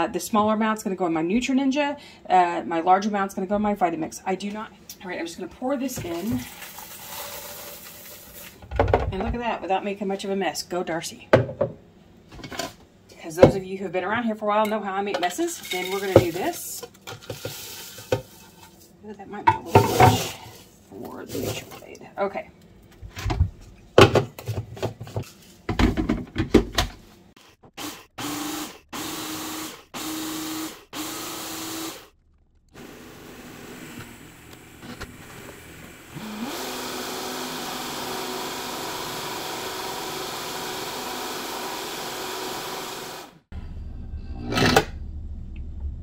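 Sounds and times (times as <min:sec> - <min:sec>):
blender motor running at high speed: 0:27.8 - 0:32.1, 0:32.8 - 0:43.4
personal blender pulsing: 0:27.8 - 0:32.1, 0:32.7 - 0:43.4.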